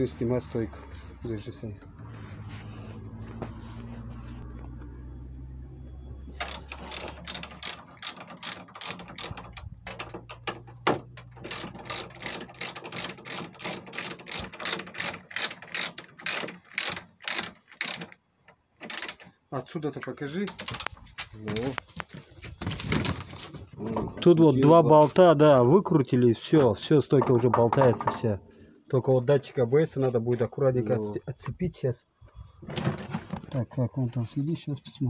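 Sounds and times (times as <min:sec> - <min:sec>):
ratchet wrench clicking: 0:06.4 - 0:09.6.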